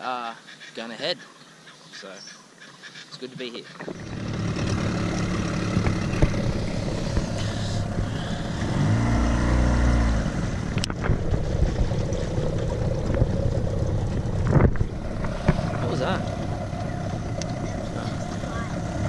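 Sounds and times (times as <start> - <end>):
engine running: 3.8 - 19.0.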